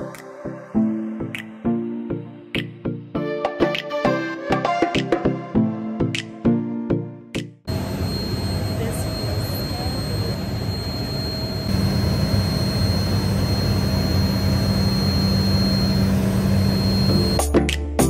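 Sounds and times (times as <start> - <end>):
jet engine and airflow rush: 7.7 - 17.4
thin high whine: 7.7 - 17.4.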